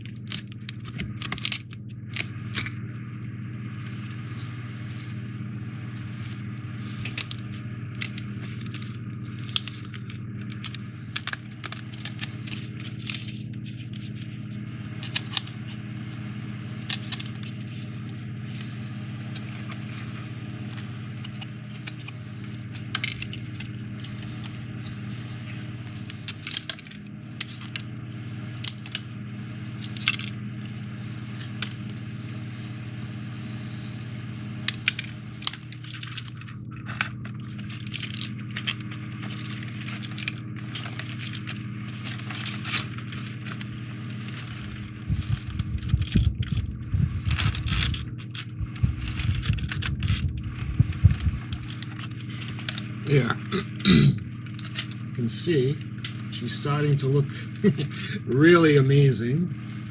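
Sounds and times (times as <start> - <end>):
foam puzzle pieces clicking: 0.0 - 2.8, 7.0 - 14.1, 16.8 - 17.5, 20.7 - 24.6, 25.9 - 27.9, 28.6 - 29.1, 29.8 - 30.3, 34.7 - 46.3
steady low hum: 0.0 - 59.9.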